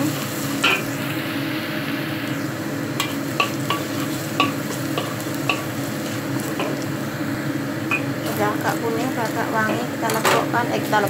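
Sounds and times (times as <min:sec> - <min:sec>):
garlic sizzling in hot oil: 0:00.0 - 0:11.0.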